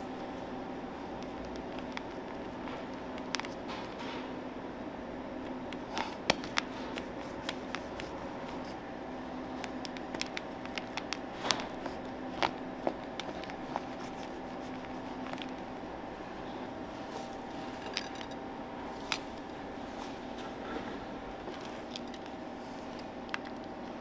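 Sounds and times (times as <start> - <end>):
chocolate shell cracking: 9.6 - 11.8.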